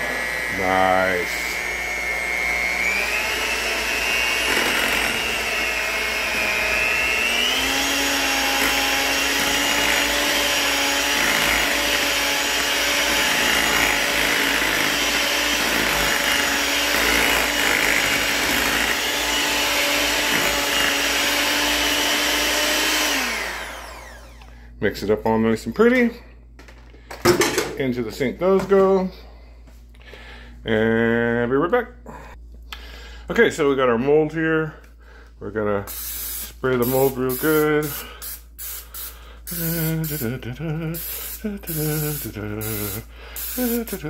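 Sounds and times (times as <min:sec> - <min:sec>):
electric hand mixer whining: 0:00.0 - 0:24.6, 0:39.0 - 0:44.0.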